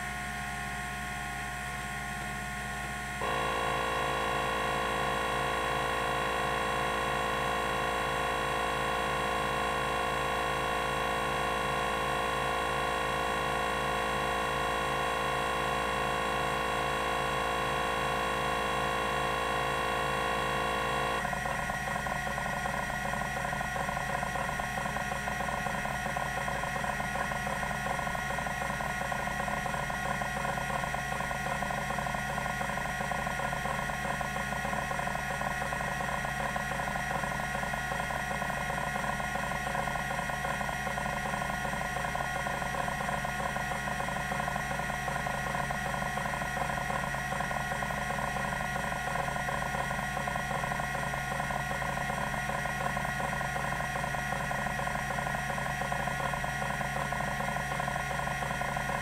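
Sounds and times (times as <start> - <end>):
steady high tone: 3.2 - 12.6
hard drive seeking chatter: 3.2 - 59.0.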